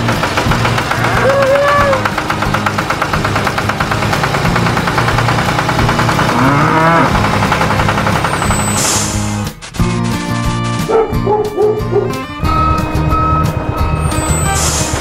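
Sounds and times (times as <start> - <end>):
cow mooing: 0.9 - 2.0, 6.3 - 7.2.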